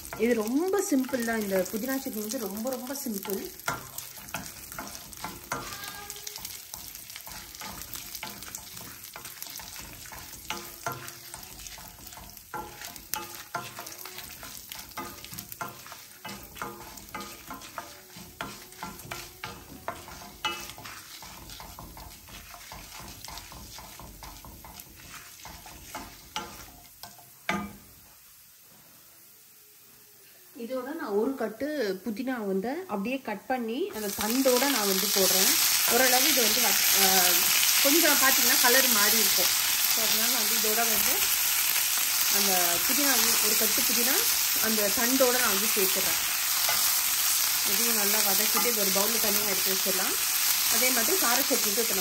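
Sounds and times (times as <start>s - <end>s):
food sizzling in oil: 0.0s - 52.0s
spoon knocking on pan: 0.1s - 27.9s.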